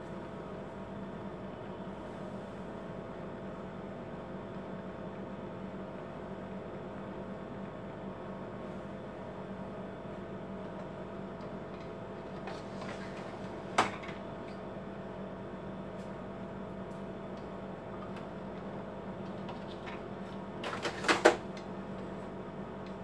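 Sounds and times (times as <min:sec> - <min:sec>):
printer tray clacks: 0:11.8 - 0:14.2, 0:19.3 - 0:21.7
printer tray click: 0:20.6 - 0:21.5.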